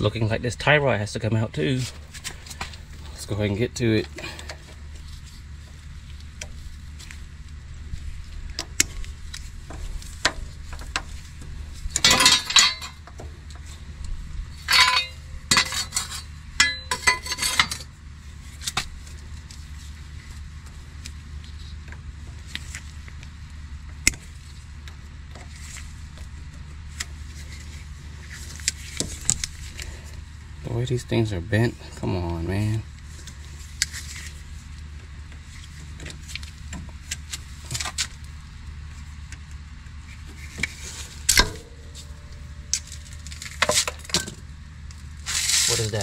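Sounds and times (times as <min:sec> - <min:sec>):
steady low hum: 0:00.0 - 0:46.0
metal tools clinking and scraping: 0:12.0 - 0:13.0, 0:14.6 - 0:17.9, 0:40.7 - 0:44.4.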